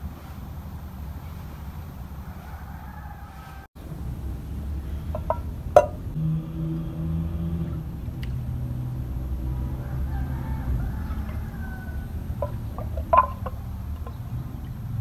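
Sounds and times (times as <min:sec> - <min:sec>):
rooster crowing: 0:02.2 - 0:03.7, 0:09.0 - 0:14.4
clay cup knocking clay pot: 0:05.1 - 0:06.0, 0:12.4 - 0:14.2.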